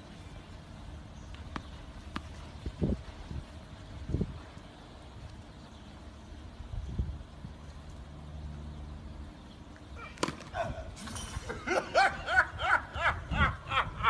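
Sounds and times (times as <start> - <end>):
wind on microphone: 2.5 - 4.6, 6.6 - 7.6
person laughing: 10.6 - 14.0.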